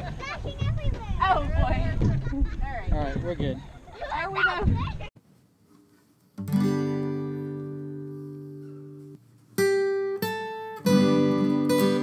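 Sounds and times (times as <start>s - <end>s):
acoustic guitar chords strummed: 6.4s - 12.0s.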